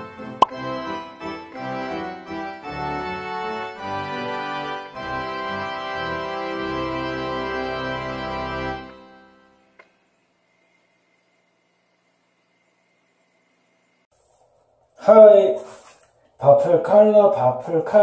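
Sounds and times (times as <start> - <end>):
organ-like keyboard chords: 0.0 - 9.5.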